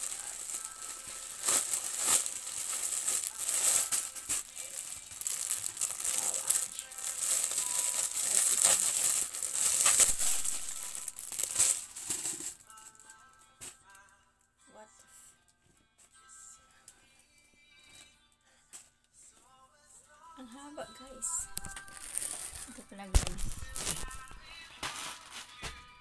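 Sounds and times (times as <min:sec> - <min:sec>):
plastic pouch tearing: 0:00.0 - 0:12.8, 0:21.4 - 0:25.6
plastic packaging crinkling: 0:00.0 - 0:13.0, 0:21.3 - 0:25.6.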